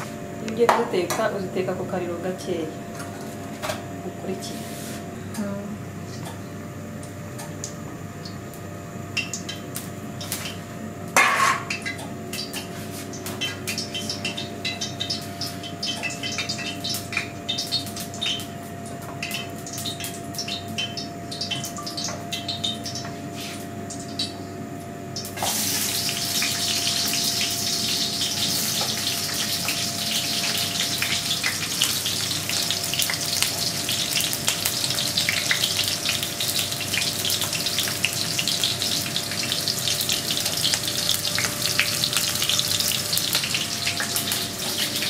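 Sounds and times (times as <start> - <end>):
food sizzling in hot oil: 9.2 - 18.6, 19.2 - 24.4, 25.2 - 45.0
wok clunk: 11.2 - 11.9
oil crackling and popping: 11.7 - 18.5, 25.2 - 45.0.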